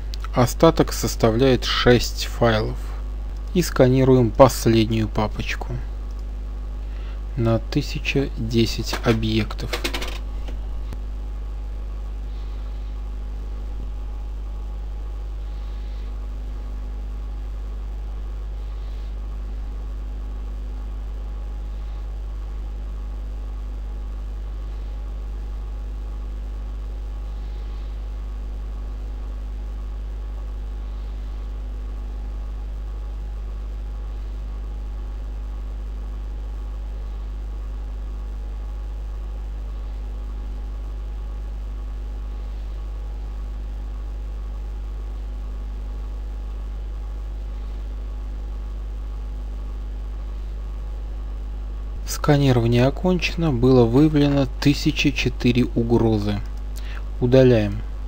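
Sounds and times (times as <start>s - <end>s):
faint whir: 0.0s - 58.0s
low electrical hum: 0.0s - 58.0s.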